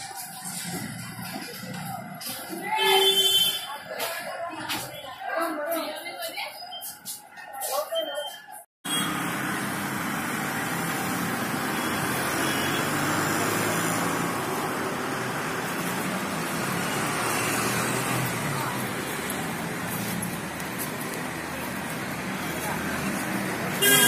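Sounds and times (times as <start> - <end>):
road traffic rumble: 8.8 - 24.0.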